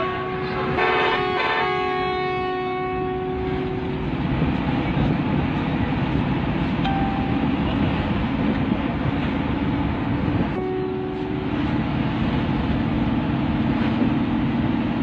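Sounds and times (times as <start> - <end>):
bus horn blast: 0.0 - 3.9, 10.6 - 11.5
bus engine and tyres rumbling: 0.0 - 15.0.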